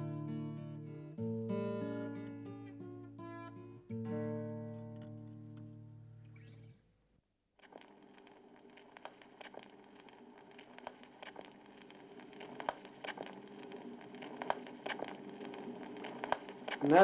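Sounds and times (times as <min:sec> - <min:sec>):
small clicks and crackles: 0:07.6 - 0:17.0.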